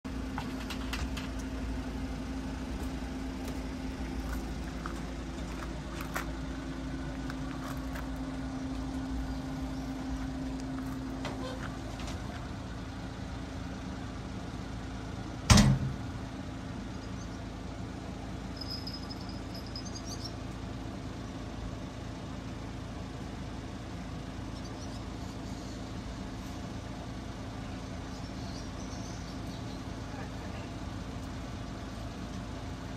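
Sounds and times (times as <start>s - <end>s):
steady mechanical hum: 0.1s - 32.9s
faint high chirps: 18.5s - 20.4s.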